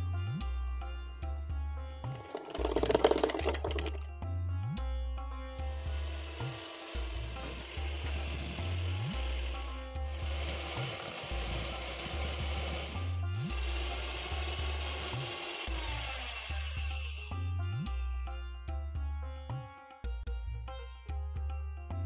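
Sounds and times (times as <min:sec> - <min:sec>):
background music with low beat: 0:00.0 - 0:22.0
electric hand mixer whirring: 0:05.9 - 0:17.3.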